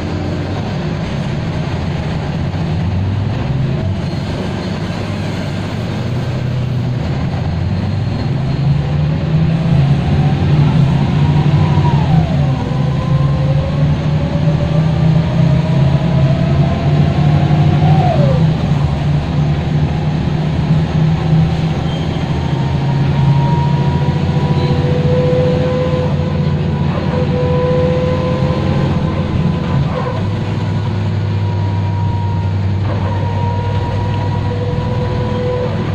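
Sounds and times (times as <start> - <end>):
deep engine drone: 0.0 - 35.9
bus gearbox whine: 21.6 - 35.9.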